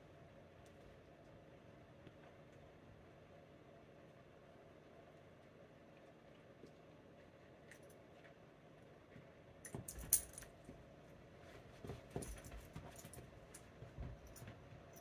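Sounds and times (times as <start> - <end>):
dog collar tags jingling: 9.8 - 10.5
soft thumps of dog moving: 11.5 - 14.9.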